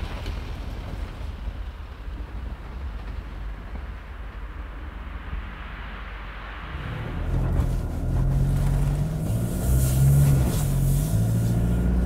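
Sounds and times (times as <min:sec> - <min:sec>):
diesel engine accelerating: 0:06.7 - 0:12.0.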